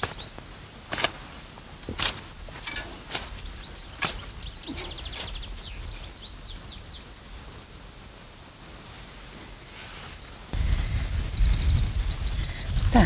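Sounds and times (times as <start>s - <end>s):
shovel scraping into soil: 0.0s - 5.6s
birds chirping: 0.0s - 7.4s, 10.6s - 13.0s.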